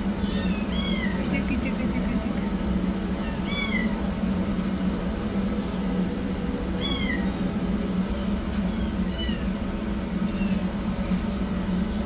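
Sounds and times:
steady low hum: 0.0s - 12.0s
kitten meowing: 0.2s - 1.3s, 3.2s - 4.0s, 6.8s - 7.2s, 8.7s - 9.5s.

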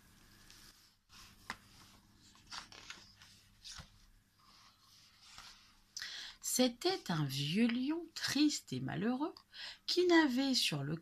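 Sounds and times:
paper pages rustling: 0.2s - 5.8s
light taps of pages: 1.2s - 4.0s.

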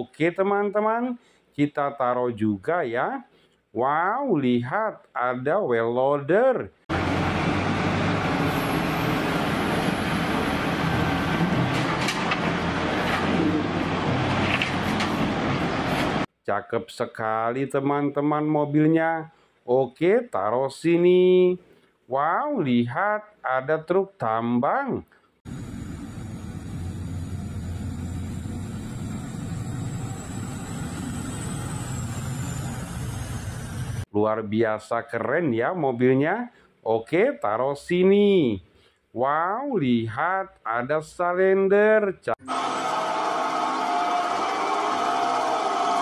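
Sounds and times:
wheel loader diesel engine under load: 6.9s - 16.3s, 25.5s - 34.1s
faint high whine: 25.5s - 34.0s.

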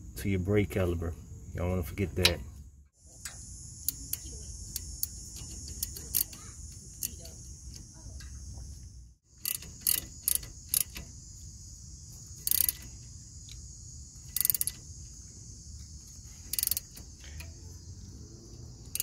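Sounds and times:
insects shrilling: 3.0s - 19.0s
ratcheting wrench clicking: 3.2s - 7.9s, 9.4s - 11.2s, 12.4s - 15.0s, 16.4s - 17.6s.

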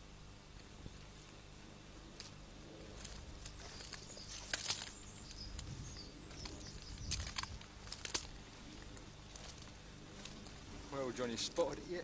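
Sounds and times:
twigs cracking underfoot: 2.1s - 10.7s
footsteps through dry grass: 2.2s - 12.0s.

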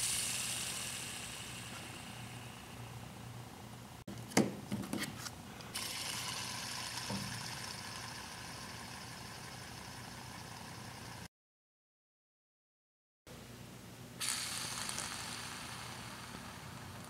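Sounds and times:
hand spinner bearing whirring: 0.0s - 2.8s, 5.7s - 11.3s, 14.2s - 17.0s.

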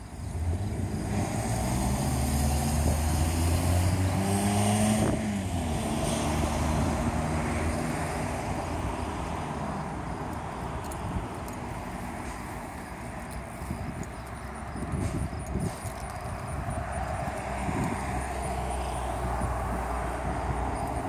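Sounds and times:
vehicle driving past: 0.3s - 10.2s.

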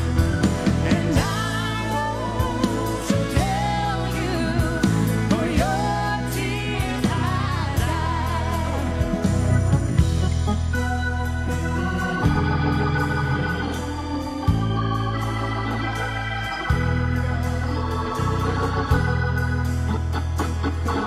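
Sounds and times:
organ playing sustained chords: 0.0s - 21.0s.

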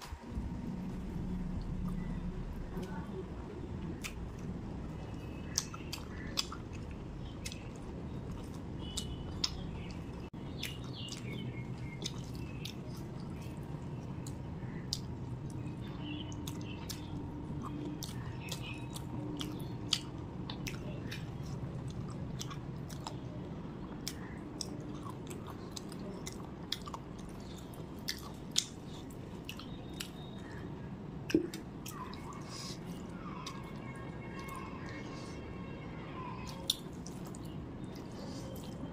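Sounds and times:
faint low hum: 0.0s - 38.9s
person chewing with wet mouth clicks: 4.0s - 4.4s, 5.0s - 10.0s, 10.6s - 23.2s, 23.8s - 30.5s, 36.4s - 38.8s.

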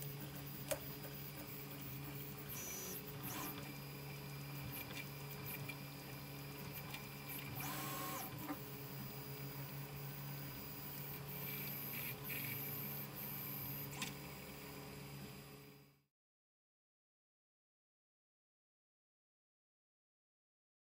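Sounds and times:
printer low hum: 0.0s - 16.0s
stepper motor whines: 2.0s - 4.0s, 7.2s - 9.4s.

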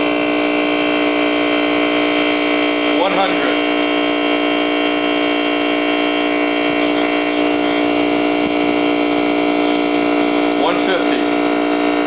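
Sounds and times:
air compressor humming: 0.0s - 12.0s.

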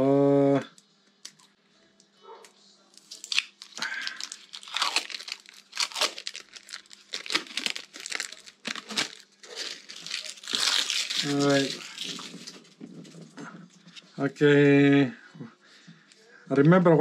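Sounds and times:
tape crinkling and tearing: 2.9s - 13.3s.

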